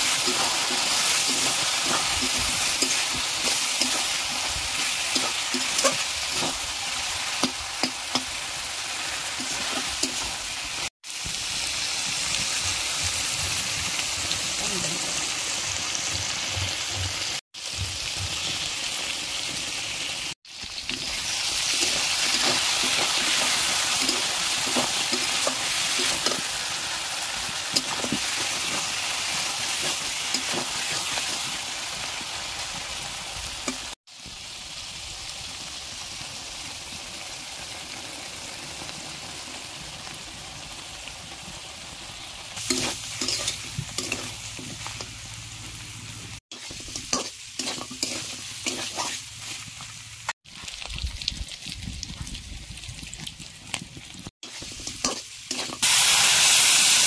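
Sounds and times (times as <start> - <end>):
spatula stirring: 0.0 - 6.7, 20.9 - 26.6, 42.6 - 45.1, 46.5 - 49.9
curry sizzling in pan: 0.0 - 57.0.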